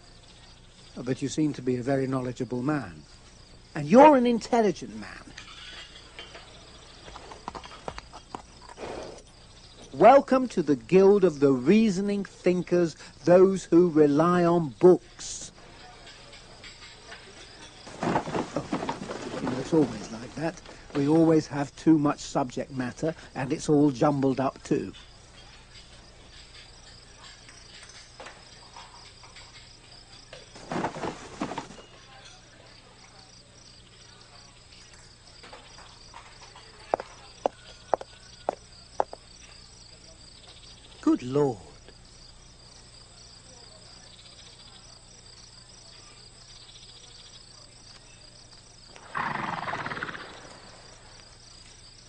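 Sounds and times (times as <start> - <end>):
crickets chirping: 0.0 - 52.0
books falling onto cobblestones: 17.5 - 21.2, 30.4 - 32.0.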